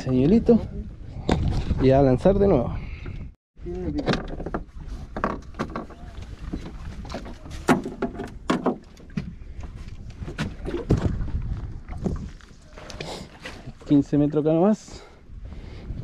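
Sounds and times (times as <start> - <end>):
fishing gear knocking and clattering: 4.0 - 6.0, 6.6 - 9.2.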